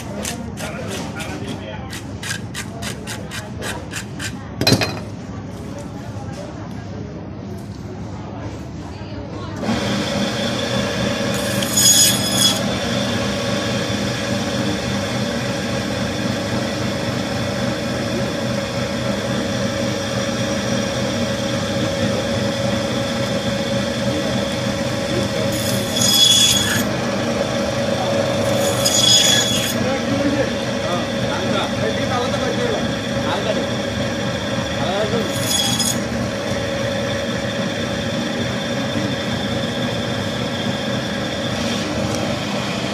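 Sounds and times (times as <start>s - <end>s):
saw blade rasping through fish: 1.9s - 4.4s, 11.4s - 12.7s, 25.4s - 26.9s, 28.4s - 29.8s, 35.2s - 36.2s
band saw running: 9.6s - 42.9s.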